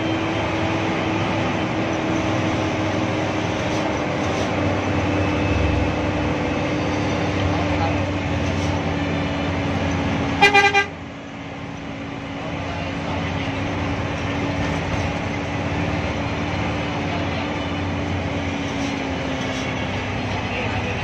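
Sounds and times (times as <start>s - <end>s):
bus engine drone: 0.0s - 21.0s
road noise: 0.0s - 21.0s
vehicle horn tooting: 10.4s - 11.0s.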